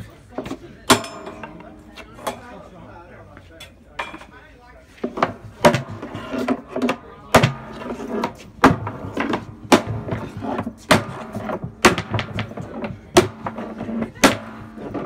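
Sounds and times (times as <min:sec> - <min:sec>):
hammer striking steel hoops: 0:00.9 - 0:02.5, 0:05.2 - 0:15.0.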